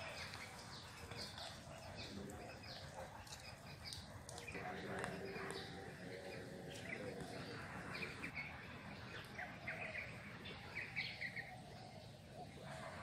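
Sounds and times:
low outdoor hum: 0.0s - 13.0s
small birds chirping: 0.0s - 13.0s.

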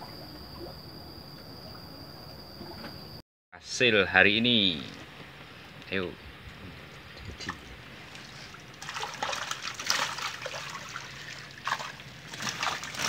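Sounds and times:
water trickling and splashing off a net: 7.4s - 13.0s.

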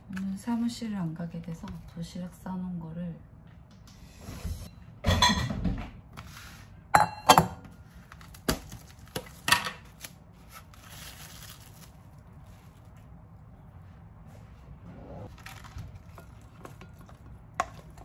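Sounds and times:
dishes clinking and knocking: 4.5s - 5.9s, 7.0s - 7.7s
dishes clattering: 5.0s - 5.8s, 7.0s - 7.6s.

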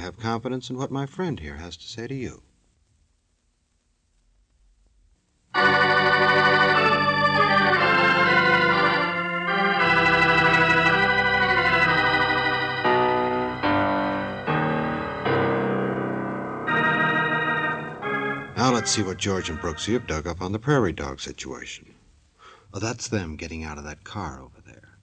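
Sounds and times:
organ chords: 5.5s - 21.2s.

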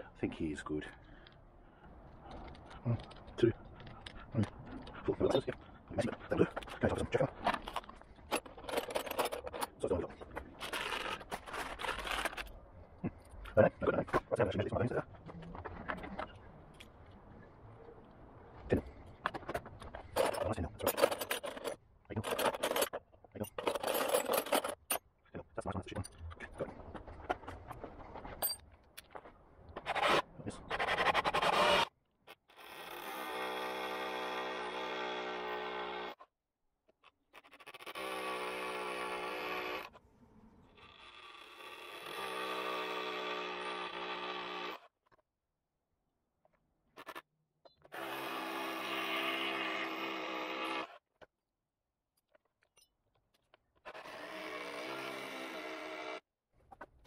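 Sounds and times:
drill bits rattling in plastic case: 6.1s - 12.5s, 19.3s - 24.9s
cordless drill running: 47.9s - 50.9s, 54.0s - 56.0s.

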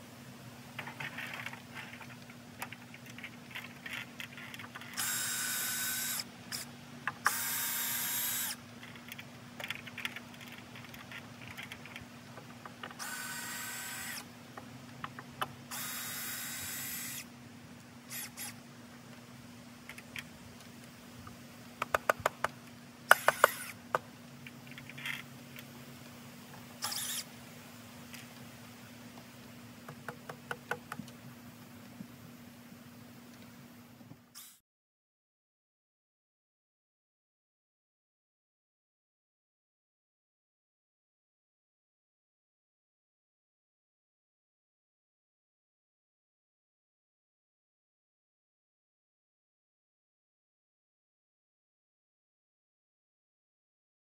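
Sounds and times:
power drill driving screws into wood: 5.0s - 8.6s, 13.0s - 14.3s, 15.7s - 17.2s, 23.1s - 23.8s, 26.8s - 27.3s, 34.4s - 34.6s
sharp knocks and clicks: 21.8s - 24.1s, 29.9s - 31.2s.

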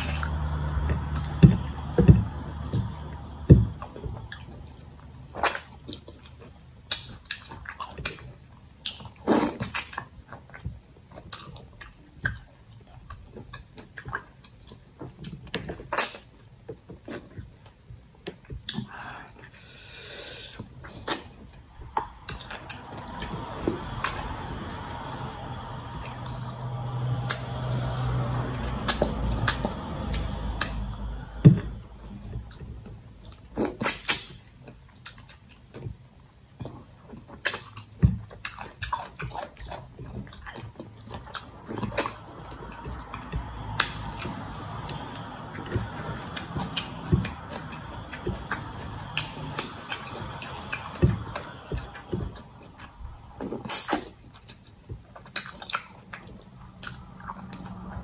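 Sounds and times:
chewing and lip smacks: 0.0s - 19.5s, 20.5s - 58.0s
sharp mouth clicks: 25.9s - 31.4s, 41.3s - 45.7s, 46.3s - 57.9s.

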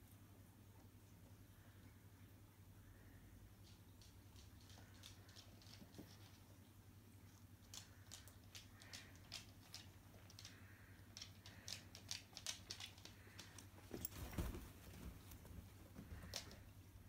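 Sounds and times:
cat paws tapping on wooden floor: 3.6s - 6.6s, 7.4s - 16.7s.

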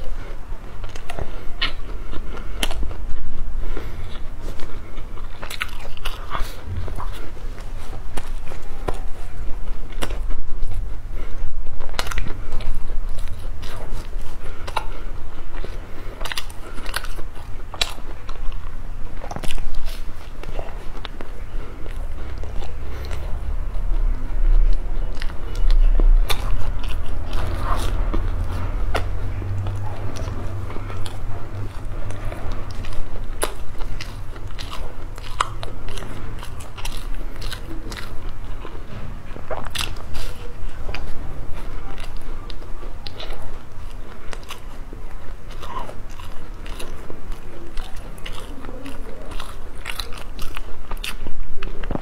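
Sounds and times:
crunchy chewing: 0.0s - 52.0s.

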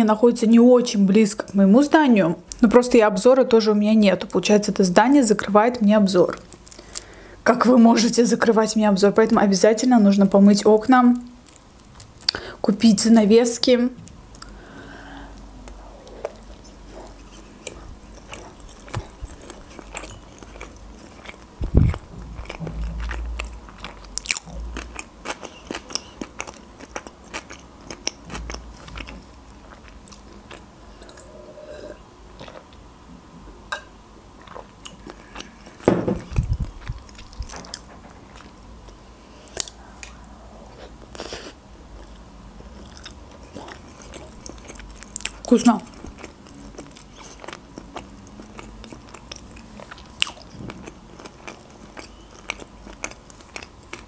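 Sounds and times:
person chewing food: 14.3s - 32.8s, 34.4s - 54.0s.

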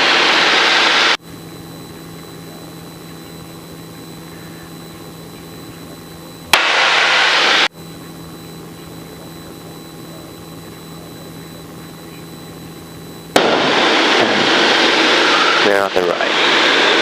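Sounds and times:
plane engine droning: 0.0s - 17.0s
loud hiss: 6.5s - 7.7s, 13.4s - 17.0s.

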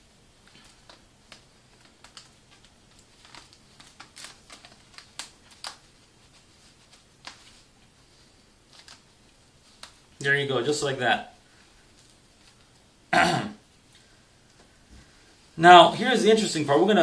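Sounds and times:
fabric rustling: 0.0s - 16.0s.

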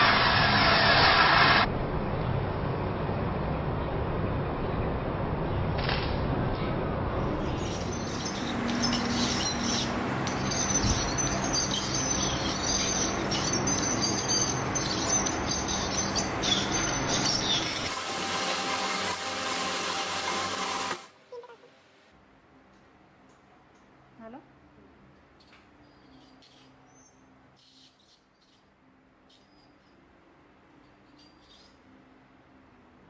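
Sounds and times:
dental instrument whine: 7.2s - 21.8s.

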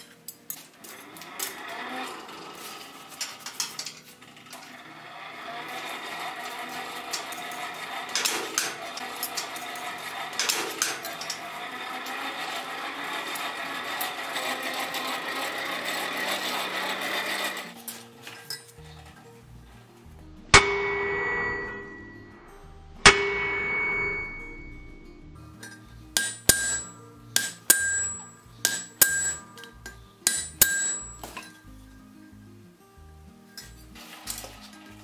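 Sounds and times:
steady whirring hum: 18.6s - 32.0s
hammer striking iron on anvil: 20.5s - 22.3s, 23.0s - 24.9s, 25.6s - 31.5s
metallic clinks: 23.1s - 32.4s.

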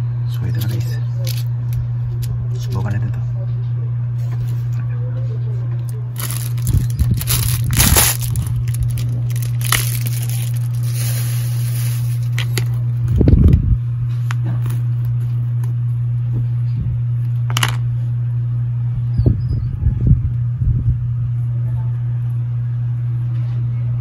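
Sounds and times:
steady low hum: 0.0s - 24.0s
plastic pieces clicking and scraping: 6.2s - 11.1s.

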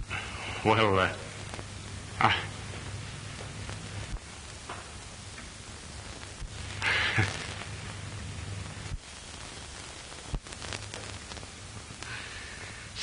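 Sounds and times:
film soundtrack hiss and hum: 0.0s - 13.0s
sharp clicks and pops: 1.4s - 1.7s, 8.8s - 12.2s.

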